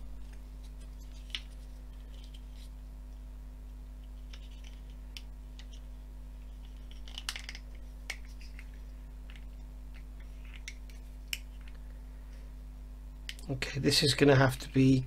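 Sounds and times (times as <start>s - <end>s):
low hum: 0.0s - 15.0s
plastic parts clicking together: 6.9s - 8.7s.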